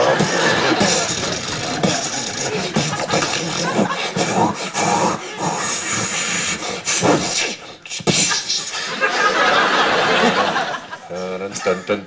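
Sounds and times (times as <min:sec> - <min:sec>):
man making mouth sound effects: 0:00.0 - 0:08.8
sudden sharp mouth noise: 0:00.2 - 0:08.8.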